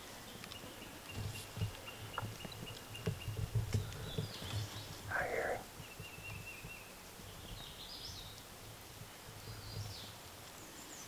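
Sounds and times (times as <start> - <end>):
songbirds singing: 0.0 - 11.0.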